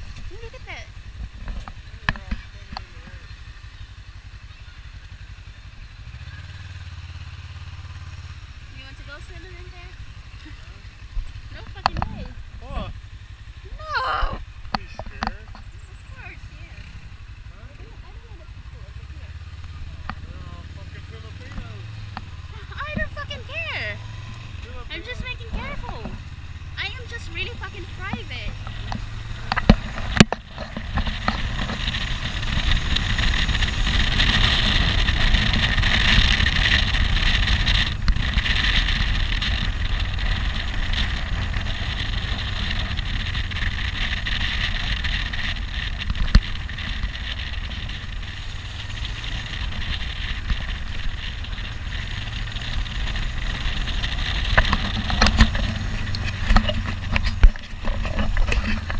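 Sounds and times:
motorcycle engine rumble: 0.0s - 58.9s
wind rushing over microphone: 21.8s - 58.9s.

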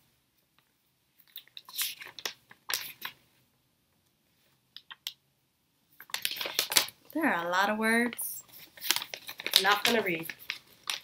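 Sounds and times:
paper crackling and rustling: 6.0s - 7.0s, 8.4s - 11.0s.

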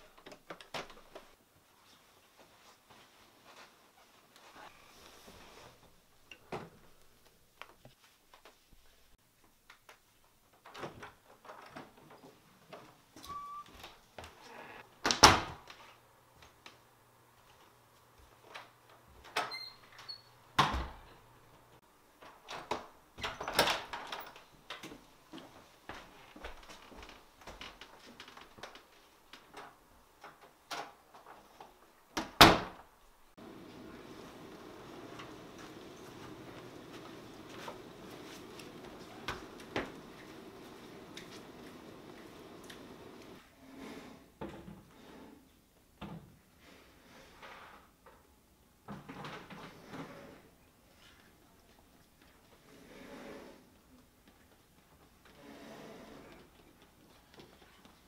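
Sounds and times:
footsteps on wooden floor: 33.4s - 43.4s.

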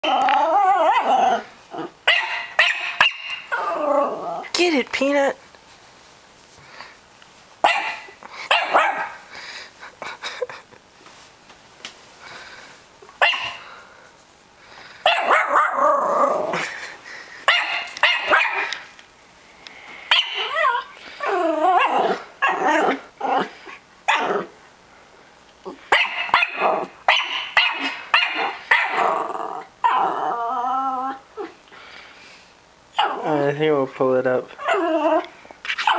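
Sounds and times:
puppy barking: 2.1s - 3.7s, 7.6s - 9.2s, 13.2s - 13.6s, 15.0s - 15.8s, 17.5s - 18.8s, 20.1s - 20.9s, 24.1s - 24.5s, 25.9s - 29.1s, 33.0s - 33.3s.

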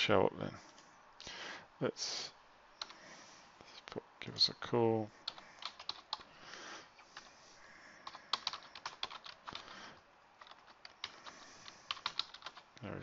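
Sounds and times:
typing on computer keyboard: 5.3s - 6.3s, 8.0s - 9.7s, 10.4s - 12.6s.

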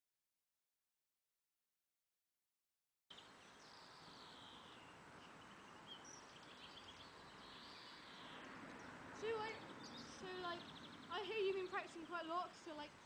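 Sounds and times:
birds chirping: 3.1s - 13.0s
low steady hiss: 3.1s - 13.0s.

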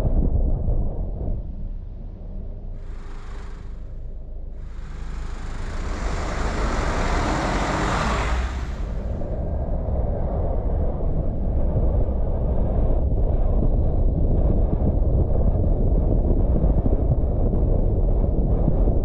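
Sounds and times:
car engine and tyres rumbling: 0.7s - 12.0s
passing traffic rush: 2.8s - 4.0s, 4.6s - 9.5s.

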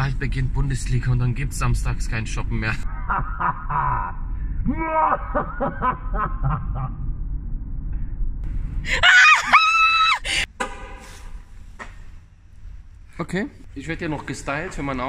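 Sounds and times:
man laughing: 2.8s - 7.0s.

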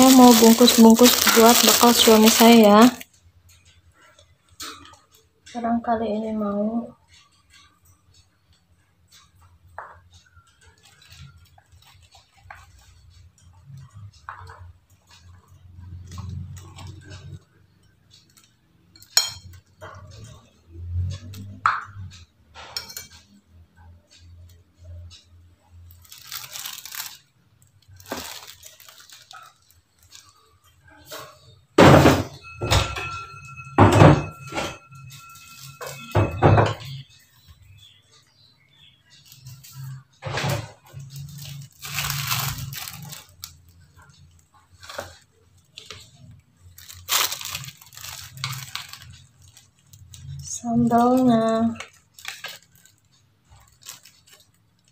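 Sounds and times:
spoon scraping: 0.0s - 3.0s
metal spoon clinking on plates: 7.0s - 20.6s, 21.3s - 23.5s
dishes knocking and clattering: 31.0s - 35.2s, 35.8s - 37.0s.

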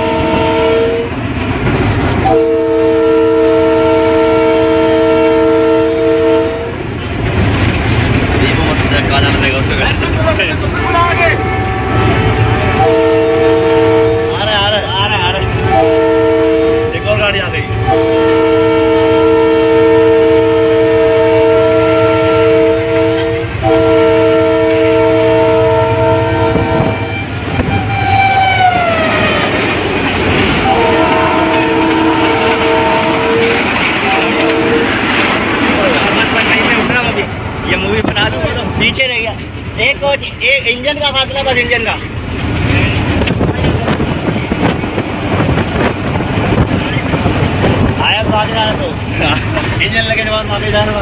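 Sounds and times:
locomotive air horn: 0.0s - 1.1s, 2.2s - 6.8s, 11.1s - 14.6s, 15.6s - 29.4s, 30.6s - 34.9s
train rumbling on track: 0.0s - 51.0s
higher horn note falling: 2.2s - 6.7s, 11.3s - 14.4s, 15.7s - 17.0s, 17.7s - 29.5s, 30.6s - 34.9s.

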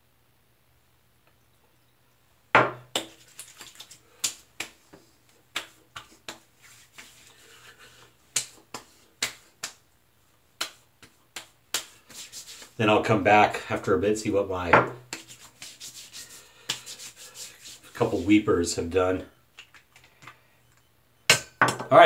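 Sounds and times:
hands slapping face: 2.9s - 7.4s, 8.3s - 9.8s, 10.6s - 12.8s, 15.1s - 18.0s
light sharp pats on face: 2.9s - 9.9s, 10.6s - 12.8s, 15.0s - 18.5s.

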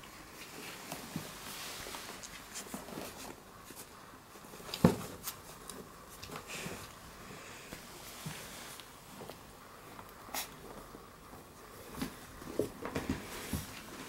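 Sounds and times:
dogs rustling on a blanket: 0.0s - 7.0s.

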